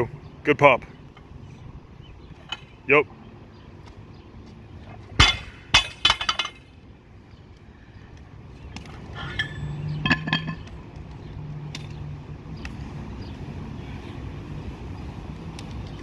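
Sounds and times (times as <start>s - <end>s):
barbell crashing onto concrete: 5.2s - 6.7s, 9.4s - 10.6s
weight plates clanking: 9.2s - 10.7s.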